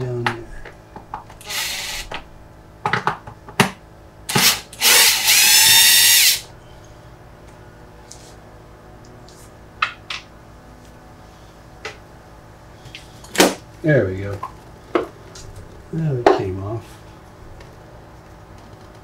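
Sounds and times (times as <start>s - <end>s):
electric drill running: 1.4s - 2.1s, 4.3s - 6.5s.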